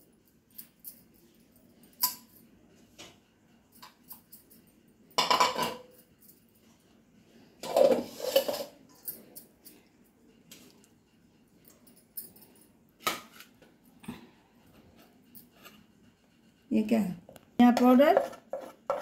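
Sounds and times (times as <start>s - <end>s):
metal bowl clattering and scraping: 5.2s - 6.0s, 7.6s - 9.2s, 17.7s - 19.0s.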